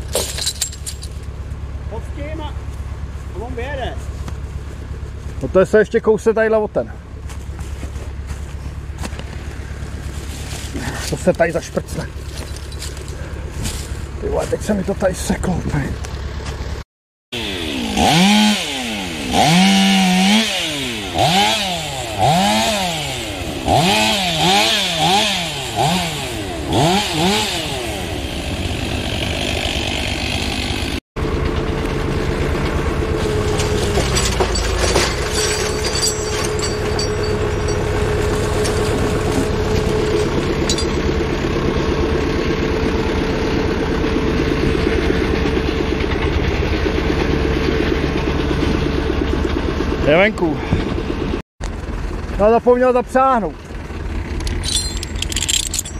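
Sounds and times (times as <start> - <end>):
engine running with whine: 0.0 - 16.8, 17.4 - 55.9
light clinks: 12.2 - 13.3, 33.9 - 39.3, 40.6 - 41.1, 54.4 - 55.9
chainsaw revving: 17.4 - 31.7.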